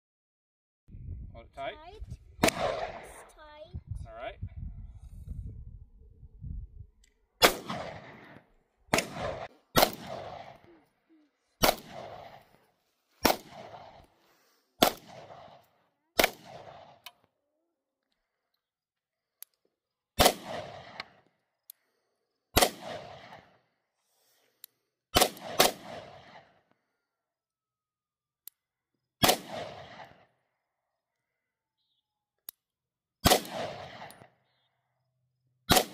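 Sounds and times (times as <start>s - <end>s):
handgun shots with echo: 2.4s - 3.1s, 7.4s - 10.7s, 11.6s - 12.4s, 13.2s - 13.9s, 16.2s - 17.1s, 20.2s - 21.2s, 22.6s - 23.4s, 25.1s - 26.5s, 29.2s - 30.2s, 33.2s - 34.3s, 35.7s - 35.9s.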